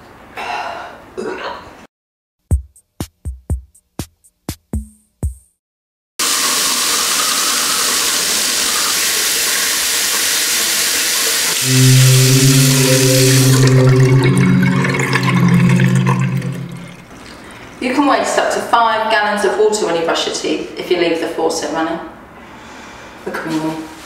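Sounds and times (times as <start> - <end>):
loud low steady hum: 11.6 - 17.0.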